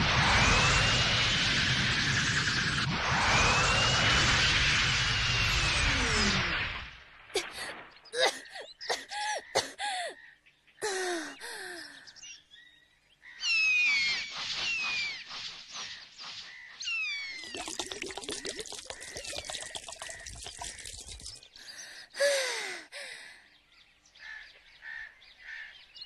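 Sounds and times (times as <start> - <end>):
birds whistling and chirping: 13.4 - 15.9, 16.8 - 17.5
water poured from a flask: 17.4 - 21.7.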